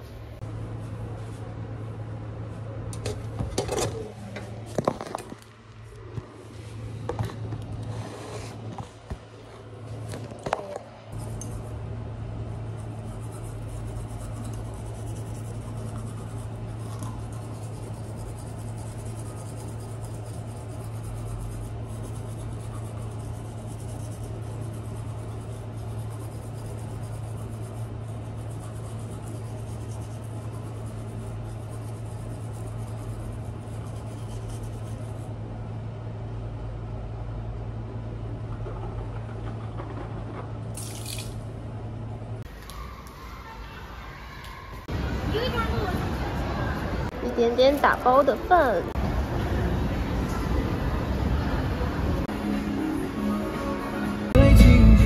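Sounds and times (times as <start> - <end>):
steady low hum with hiss: 0.0 - 55.0.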